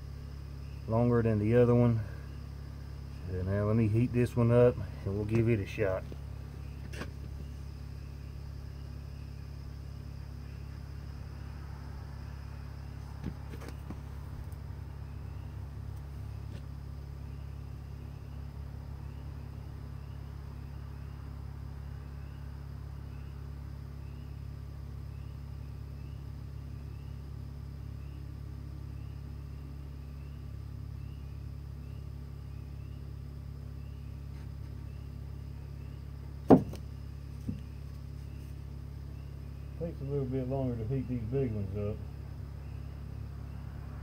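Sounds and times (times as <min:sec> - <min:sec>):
faint chirps: 0:00.0 - 0:44.0
low outdoor rumble: 0:00.0 - 0:44.0
sharp loud knock: 0:36.5 - 0:36.8.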